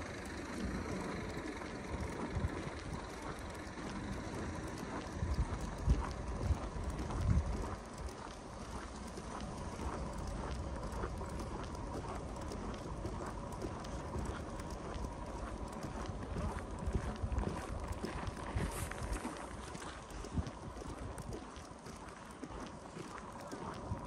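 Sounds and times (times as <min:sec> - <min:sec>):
steady outdoor hiss: 0:00.0 - 0:24.0
footsteps crunching in snow: 0:17.0 - 0:20.5.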